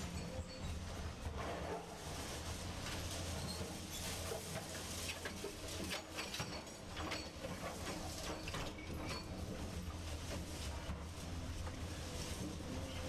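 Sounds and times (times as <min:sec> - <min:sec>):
clicks and clatter: 0:04.1 - 0:09.7.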